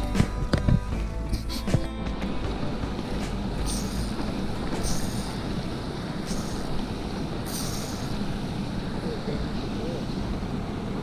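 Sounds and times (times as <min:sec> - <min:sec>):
mountain stream rushing: 0:01.5 - 0:11.0
short high hiss: 0:06.2 - 0:06.8, 0:07.5 - 0:08.3.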